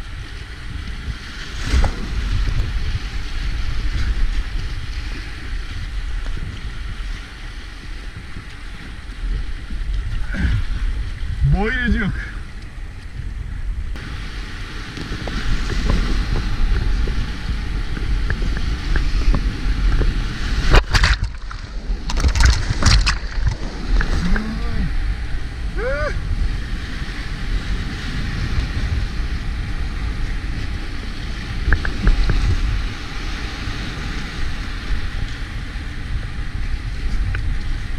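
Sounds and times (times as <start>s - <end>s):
loud splashes: 20.5s - 24.8s.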